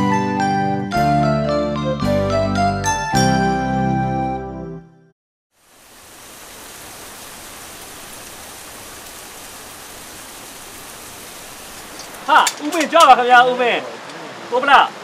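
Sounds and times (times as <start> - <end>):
rain on foliage: 5.5 - 15.0.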